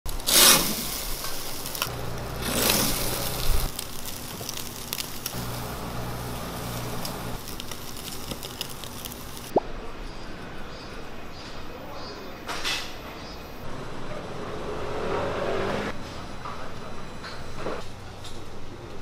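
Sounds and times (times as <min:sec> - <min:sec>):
meat sizzling on charcoal grill: 0:00.1 - 0:09.6
loud rushing hisses: 0:05.3 - 0:07.5.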